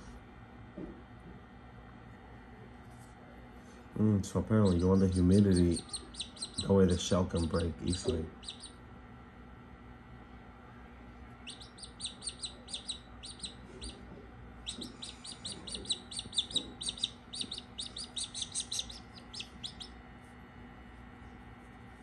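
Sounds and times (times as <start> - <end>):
chick peeping: 4.6 - 6.7, 7.3 - 8.8, 11.4 - 20.0.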